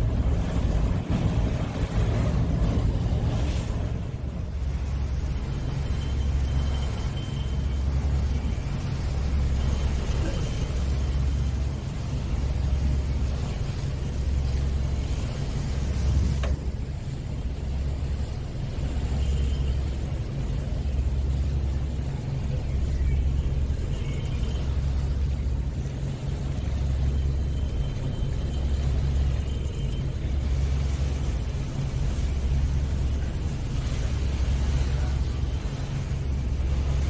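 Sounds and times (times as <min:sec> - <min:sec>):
wind buffeting microphone: 0:00.0 - 0:07.0
ferry low rumble: 0:00.0 - 0:37.0.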